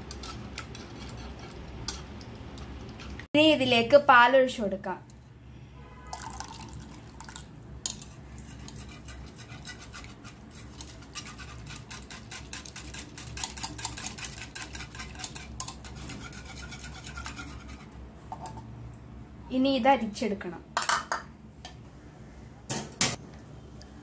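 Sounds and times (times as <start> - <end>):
whisk beating in plastic bowl: 8.6 - 17.8.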